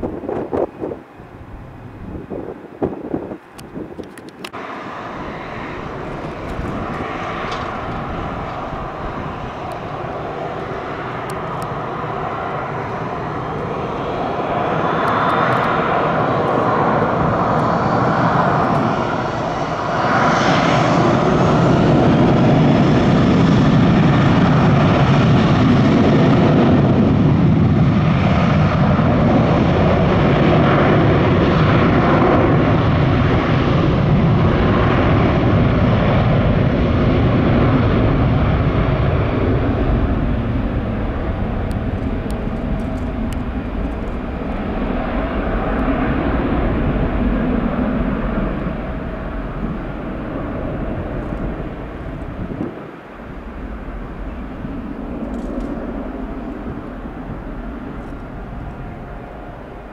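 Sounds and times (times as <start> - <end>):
jet engines roaring: 0.0 - 59.9.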